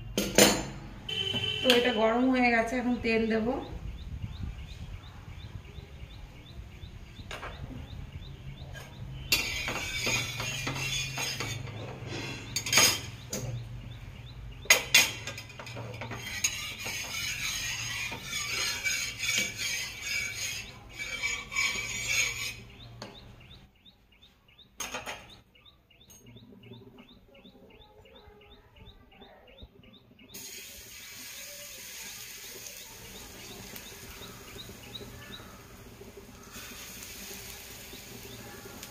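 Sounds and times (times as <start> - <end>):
spatula scraping pan: 8.7 - 13.2, 14.7 - 23.2, 30.4 - 38.9
hot oil hissing on griddle: 9.3 - 12.5, 30.4 - 38.9.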